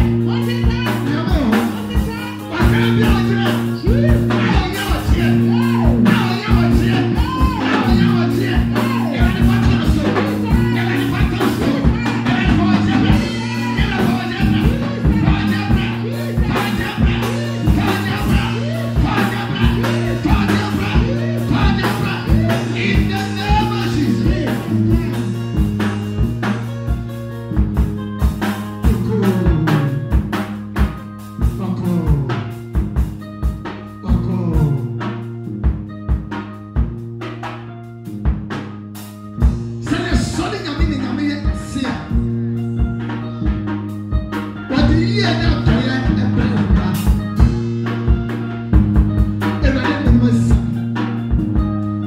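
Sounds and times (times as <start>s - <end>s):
drum kit beat: 0.0s - 52.0s
electronic keyboard chords: 0.0s - 52.0s
voices singing into microphone: 7.6s - 25.3s.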